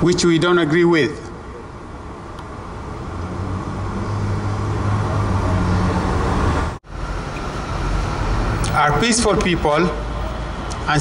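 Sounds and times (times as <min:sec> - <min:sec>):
street traffic: 0:00.0 - 0:11.0
heavy vehicle engine humming: 0:01.3 - 0:11.0.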